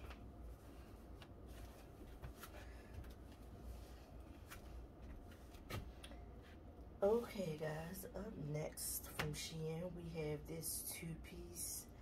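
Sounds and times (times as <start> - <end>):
clothing fabric rustling: 0.0 - 7.6
low room hum: 0.0 - 12.0.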